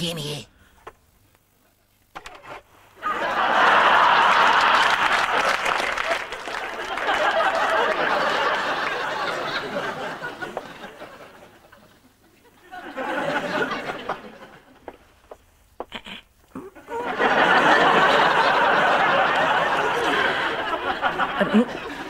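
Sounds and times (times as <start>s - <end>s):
audience laughing and applauding: 3.0s - 15.0s, 16.8s - 22.0s.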